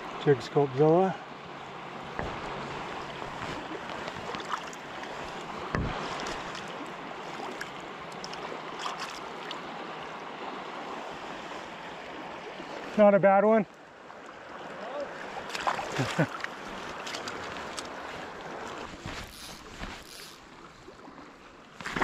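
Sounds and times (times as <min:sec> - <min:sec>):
river water rushing: 0:00.0 - 0:22.0
dull bump: 0:02.1 - 0:03.5, 0:05.7 - 0:06.0.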